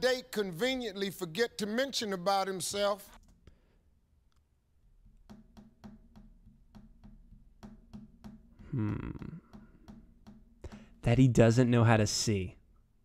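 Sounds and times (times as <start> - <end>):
ticking percussion beat: 5.2 - 11.1.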